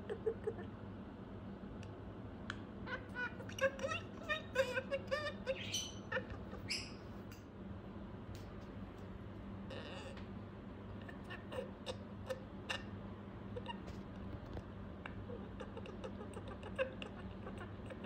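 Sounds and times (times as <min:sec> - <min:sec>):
budgerigar chattering: 0:02.9 - 0:07.0.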